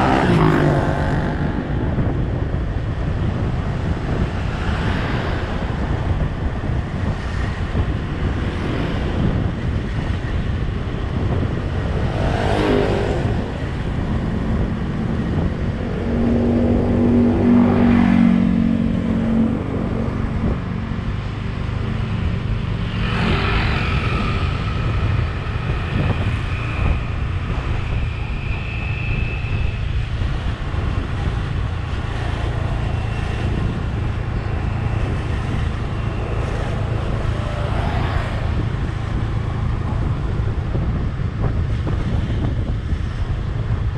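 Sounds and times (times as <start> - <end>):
engine revving: 0.0 - 1.8
vehicle passing: 0.0 - 2.2, 11.5 - 21.0
wind and road noise: 0.0 - 43.9.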